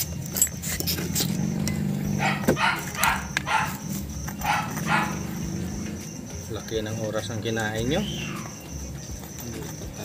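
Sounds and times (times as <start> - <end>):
dog barking: 2.2 - 5.4.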